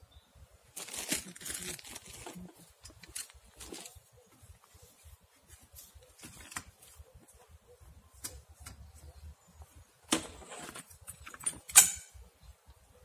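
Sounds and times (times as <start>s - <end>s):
folding chair frame clicks: 10.1s - 12.1s.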